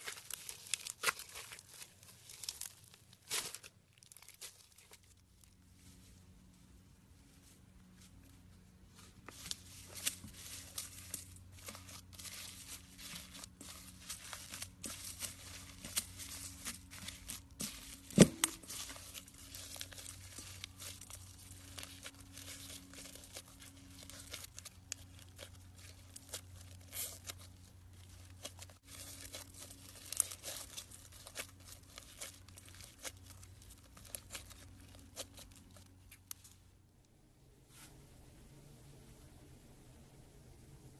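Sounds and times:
slime crackling with foam beads: 0.0s - 5.4s, 9.3s - 36.4s.

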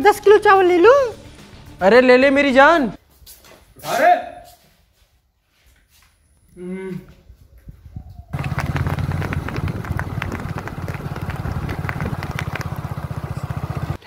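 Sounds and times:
engine running: 8.4s - 14.0s.

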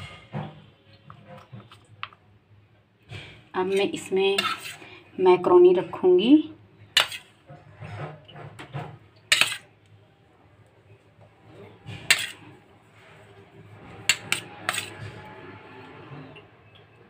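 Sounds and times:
spoon scraping metal bowl: 1.0s - 2.2s, 3.2s - 5.9s, 6.8s - 9.8s, 11.4s - 16.8s.

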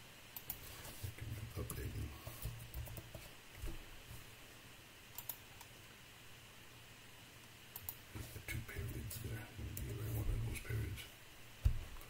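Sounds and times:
keyboard and mouse clicks: 0.4s - 0.6s, 5.1s - 5.7s, 7.8s - 8.0s.

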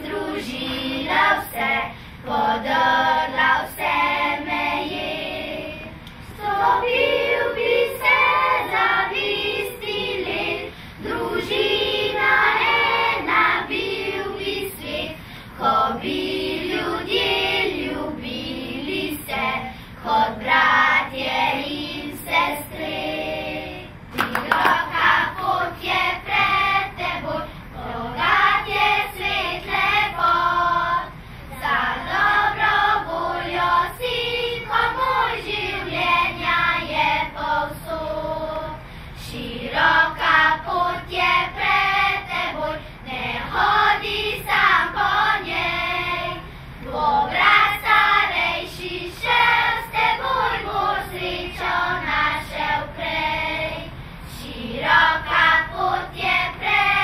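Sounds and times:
children's choir singing: 0.0s - 57.0s.

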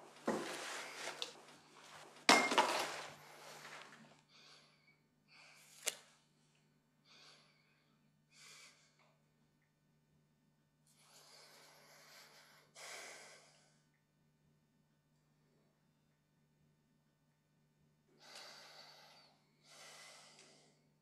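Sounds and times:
man breathing softly: 3.2s - 5.8s, 7.0s - 9.1s, 10.9s - 13.9s, 18.2s - 21.0s.

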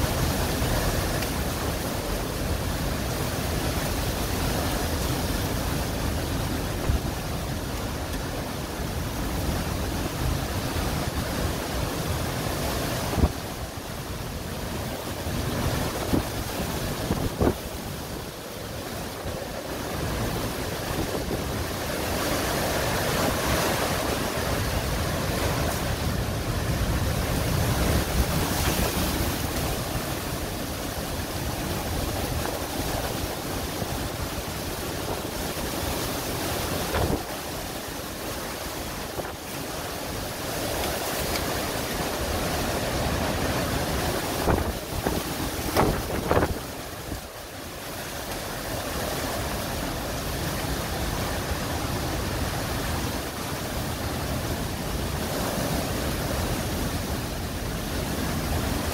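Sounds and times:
storm wind and rain: 0.0s - 58.9s
wind buffeting microphone: 14.8s - 37.4s, 43.0s - 47.3s.

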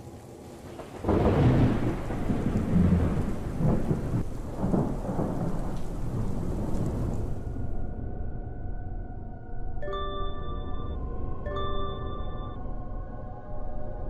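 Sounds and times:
steady rain: 0.0s - 7.8s
thunder rumbling: 0.0s - 8.3s.

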